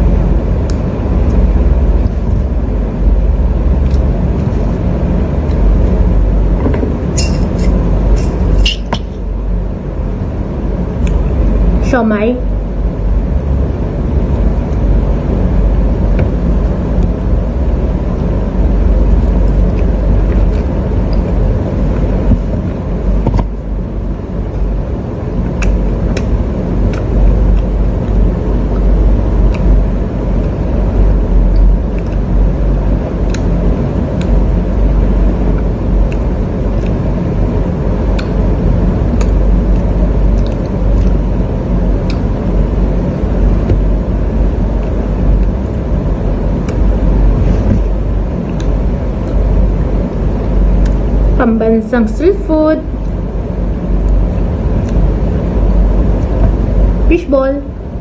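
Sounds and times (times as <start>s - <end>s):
steady low rumble: 0.0s - 58.0s
person chewing food: 38.1s - 41.2s.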